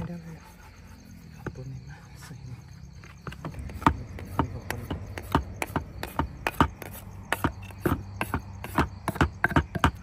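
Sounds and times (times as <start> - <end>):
pole pounding rice in bucket: 3.6 - 10.0.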